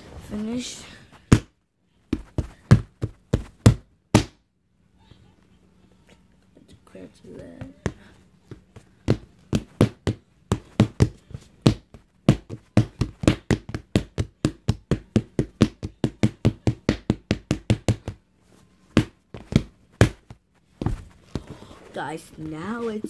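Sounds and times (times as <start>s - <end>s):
padded punching mitts smacking: 2.1s - 4.4s, 7.8s - 18.2s, 18.9s - 21.1s.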